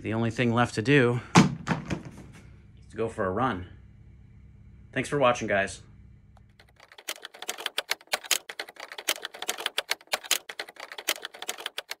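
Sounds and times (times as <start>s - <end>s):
typewriter key clicks: 6.6s - 12.0s.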